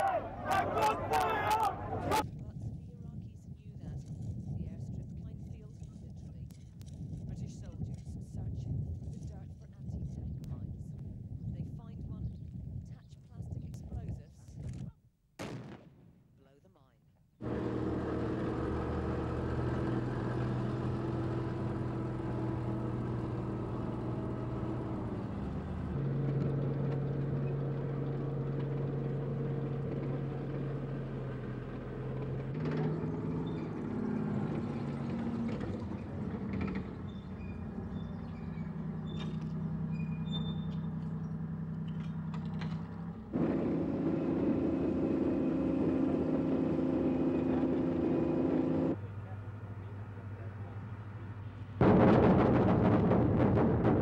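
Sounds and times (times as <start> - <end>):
vehicle engines droning: 0.0 - 2.5, 17.4 - 54.0.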